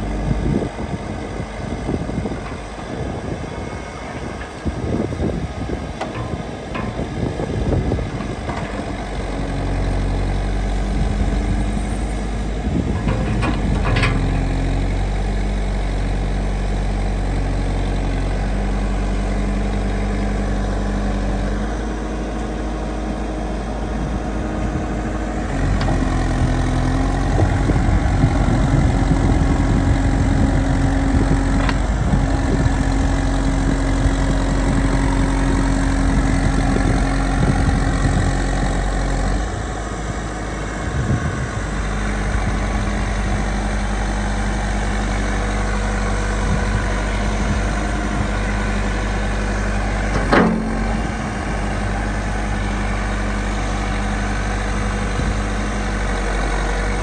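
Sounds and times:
diesel engine starting and idling: 0.0 - 57.0
clunk: 6.0 - 9.1, 12.9 - 15.0, 31.2 - 31.9, 49.9 - 51.8.

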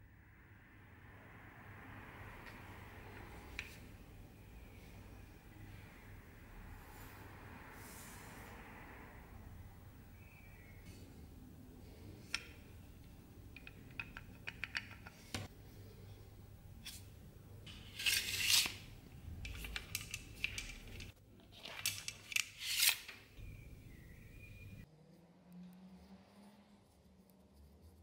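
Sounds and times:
metal clicks and scrapes: 17.7 - 23.2.

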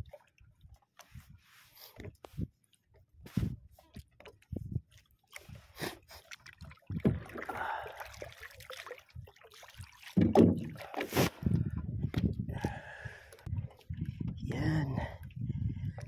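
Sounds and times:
water lapping against boat hull: 0.0 - 16.0
knocks and heavy thumps: 10.2 - 10.9.

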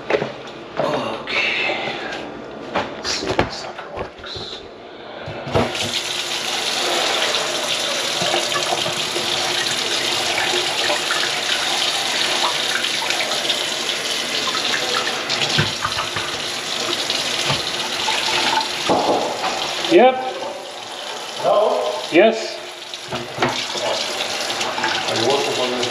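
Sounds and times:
faucet running into steel sink: 5.7 - 25.9.

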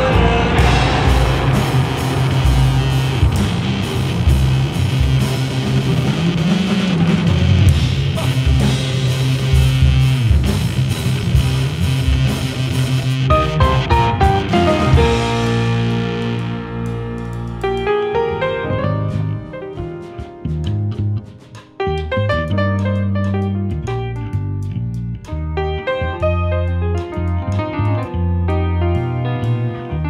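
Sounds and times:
drums and cymbals: 0.0 - 21.8
grand piano: 0.0 - 30.0
walking bass line: 0.0 - 30.0.

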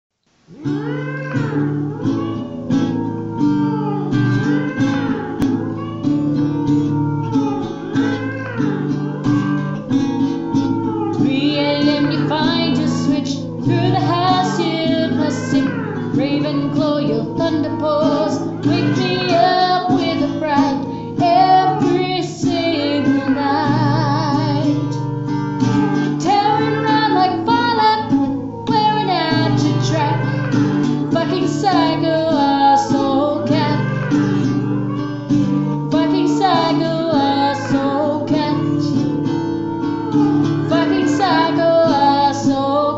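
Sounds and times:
high voice singing: 11.2 - 39.0, 39.8 - 42.9.

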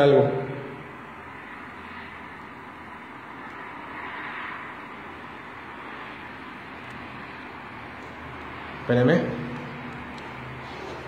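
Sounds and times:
steady background hiss: 0.0 - 11.0.

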